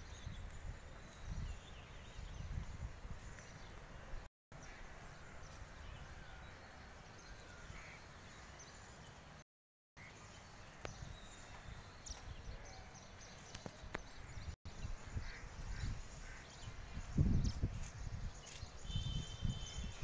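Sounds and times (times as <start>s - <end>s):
wind rumble on microphone: 0.0s - 4.3s, 13.6s - 20.0s.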